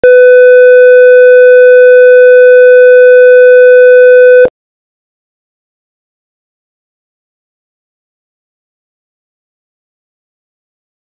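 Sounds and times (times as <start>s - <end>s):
steady electronic test tone: 0.0s - 4.5s.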